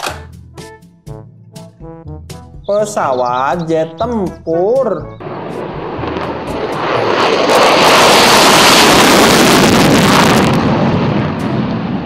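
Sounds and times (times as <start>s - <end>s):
fighter jet taking off: 5.1s - 12.0s.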